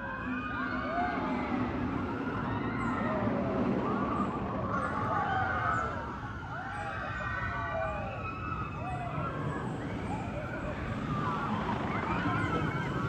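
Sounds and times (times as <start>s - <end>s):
roller coaster riders screaming: 0.0s - 13.0s.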